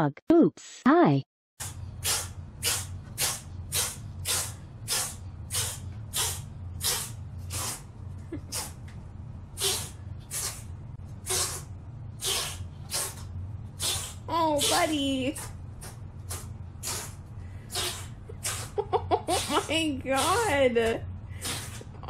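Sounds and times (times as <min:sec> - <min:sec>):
cat hissing: 0:01.6 - 0:08.8, 0:09.5 - 0:20.6, 0:21.3 - 0:21.9.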